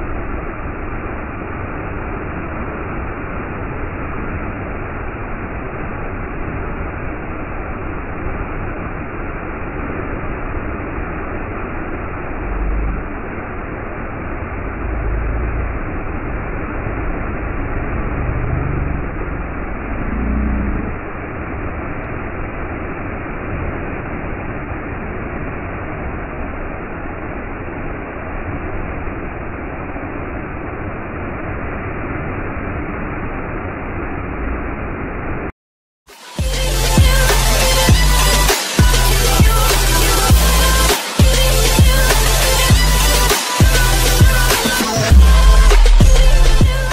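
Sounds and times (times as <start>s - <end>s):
waterfall rushing and splashing: 0.0s - 35.2s, 36.1s - 46.9s
low rumbles: 10.7s - 22.8s, 36.5s - 46.9s.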